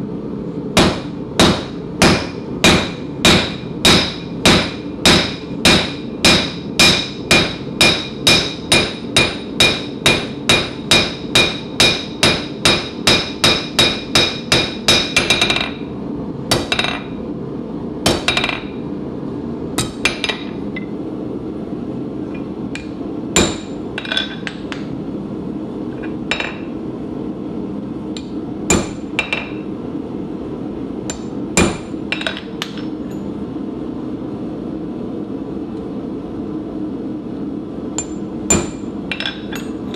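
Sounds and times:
steady background rumble: 0.0s - 39.9s
hammer ringing on anvil: 0.8s - 15.8s, 38.0s - 39.7s.

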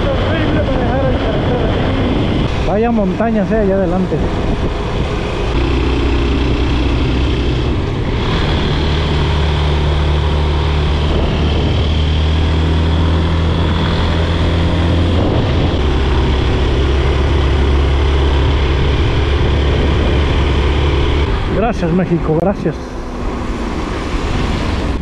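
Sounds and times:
rushing wind noise: 0.0s - 25.0s
motorcycle engine droning: 4.4s - 21.6s.

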